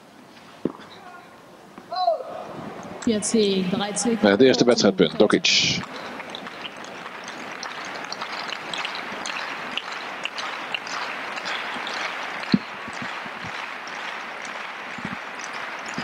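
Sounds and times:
crowd noise: 0.0 - 16.0
scattered clapping: 5.8 - 16.0.

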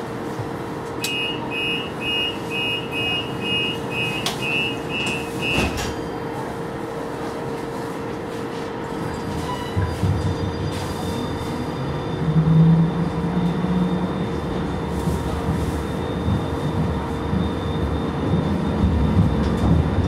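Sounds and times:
tram equipment hum: 0.0 - 20.0
door warning beeps: 1.0 - 6.1.

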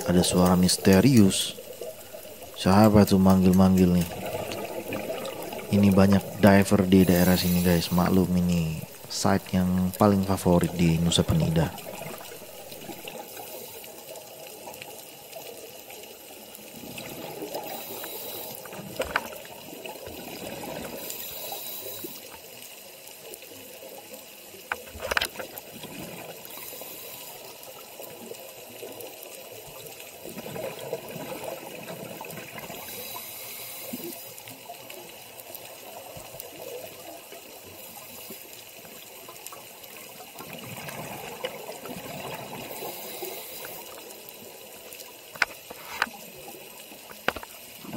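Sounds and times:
scuba regulator bubbling underwater: 0.0 - 13.3.

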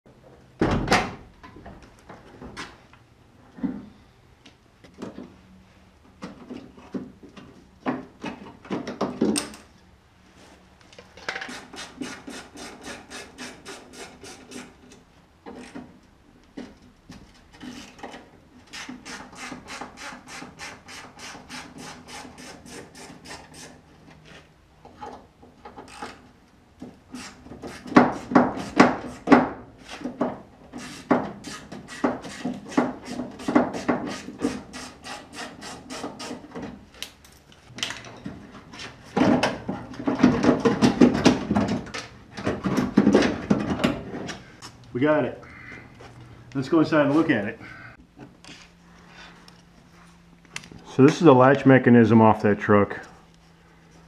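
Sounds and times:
knocks and clatter: 37.7 - 44.4.

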